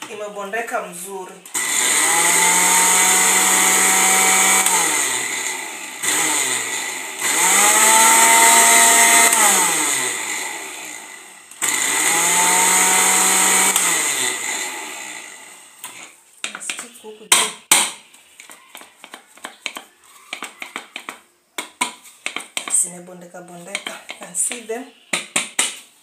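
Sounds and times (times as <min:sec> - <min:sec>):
blender motor running: 0:01.5 - 0:16.1.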